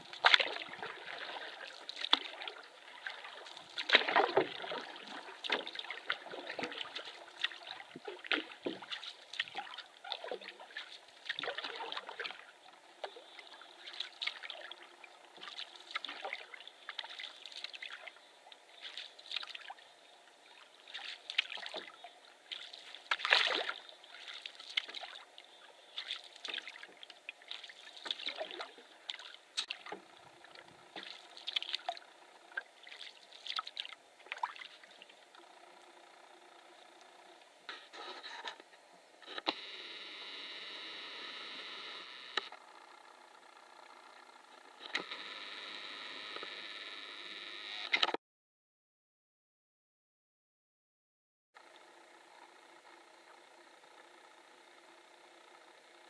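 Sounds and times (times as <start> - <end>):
water splashing and dripping: 0.0 - 14.8, 15.4 - 19.8, 20.5 - 25.3, 26.0 - 32.0, 32.6 - 35.1
canoe paddle strokes in water: 0.0 - 37.1.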